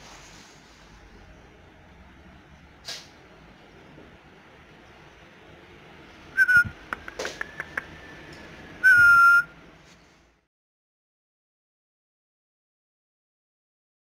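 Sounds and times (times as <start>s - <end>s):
high whistles: 6.4s - 6.8s, 7.4s - 9.6s.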